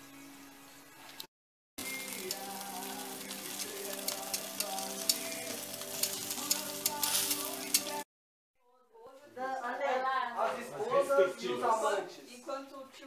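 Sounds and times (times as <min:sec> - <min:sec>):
fat crackling and popping: 0:01.2 - 0:08.1
chicken sizzling on a grill: 0:01.8 - 0:08.1.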